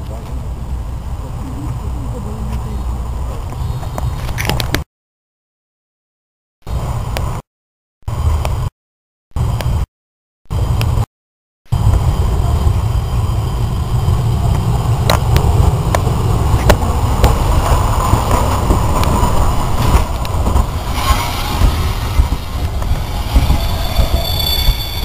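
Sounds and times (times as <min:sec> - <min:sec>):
high rushing noise: 0:11.7 - 0:25.0
steam locomotive rumble: 0:11.8 - 0:25.0.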